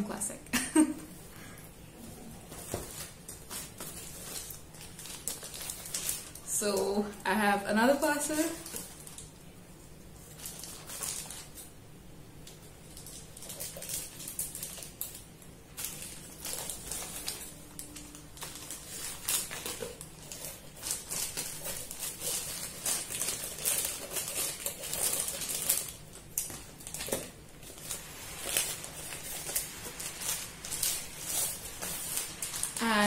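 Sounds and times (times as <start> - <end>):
plastic mailer crinkling: 2.5 - 7.1, 10.2 - 11.7, 12.5 - 33.0
scissors cutting plastic: 15.8 - 29.6.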